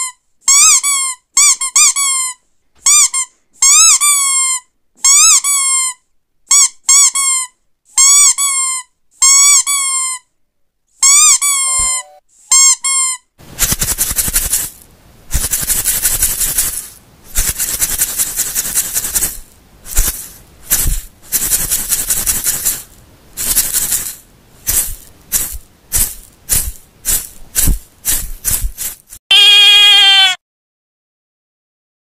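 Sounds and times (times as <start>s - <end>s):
rattle shaking: 13.4s - 29.2s.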